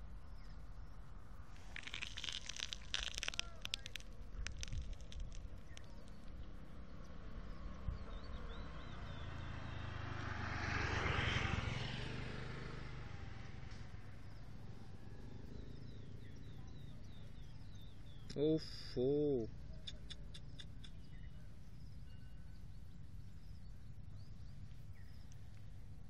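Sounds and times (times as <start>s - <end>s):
sharp crackling clicks: 1.6s - 6.6s
vehicle engine passing by: 6.4s - 18.2s.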